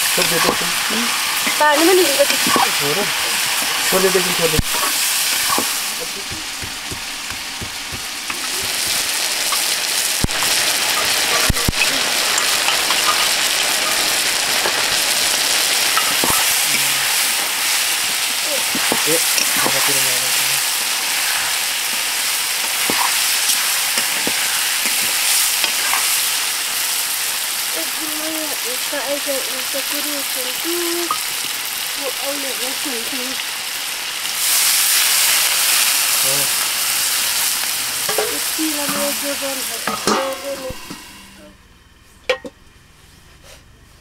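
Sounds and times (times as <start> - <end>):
chicken sizzling in hot oil: 0.0 - 41.4
metal ladle scraping pan: 38.1 - 41.4.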